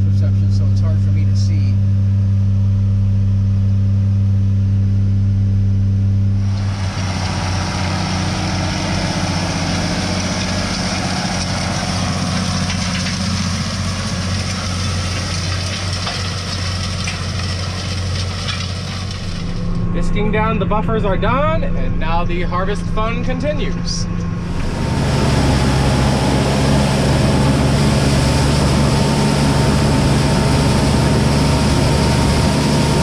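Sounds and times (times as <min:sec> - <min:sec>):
tractor diesel engine droning: 0:00.0 - 0:33.0
tractor engine working with hiss: 0:06.4 - 0:19.8, 0:23.2 - 0:33.0.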